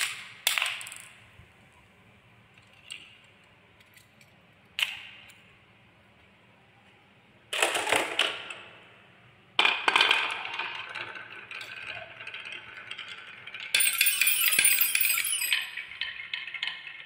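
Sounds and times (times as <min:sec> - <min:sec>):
wooden balls clattering down track: 0:07.5 - 0:08.6, 0:09.6 - 0:17.0
balls ringing on xylophone bars: 0:13.0 - 0:16.2.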